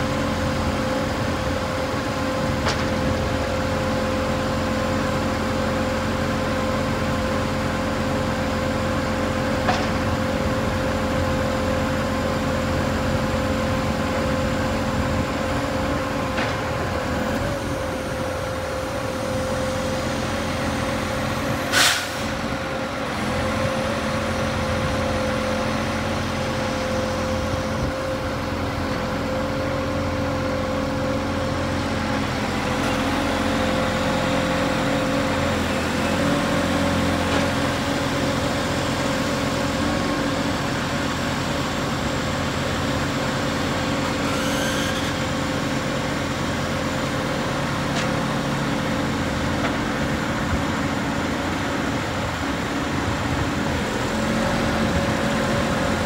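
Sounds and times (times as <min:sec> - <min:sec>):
diesel engine running: 0:00.0 - 0:56.0
hydraulic whine: 0:42.7 - 0:47.0.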